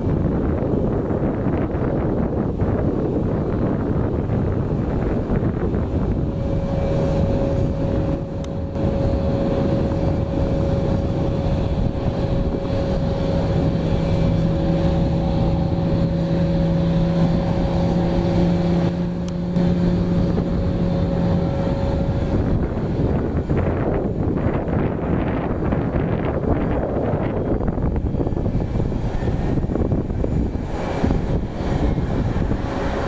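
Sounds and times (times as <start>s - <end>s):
jet engines rumbling: 0.0s - 33.0s
wind noise on microphone: 0.0s - 33.0s.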